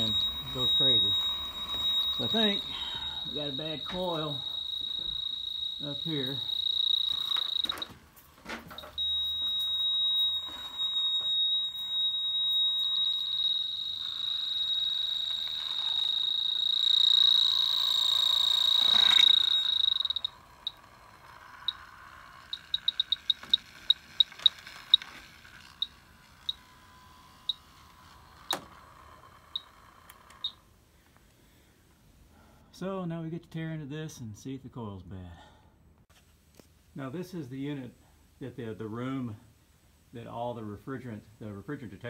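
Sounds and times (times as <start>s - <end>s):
leak detector beeping: 0.0s - 30.6s.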